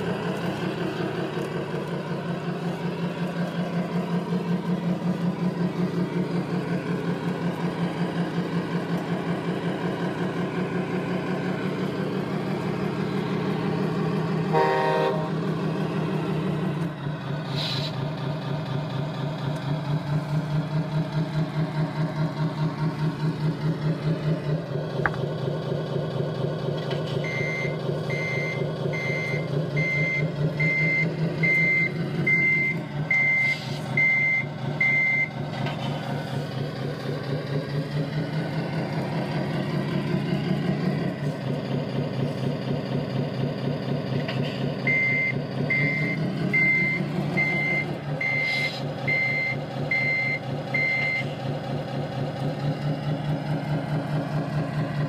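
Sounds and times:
truck engine sound from speaker: 0.0 - 55.0
reversing beeps: 27.2 - 35.4, 44.8 - 51.3.

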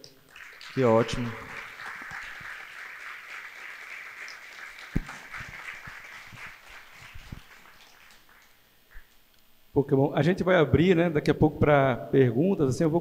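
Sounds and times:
audience applauding: 0.3 - 9.2.

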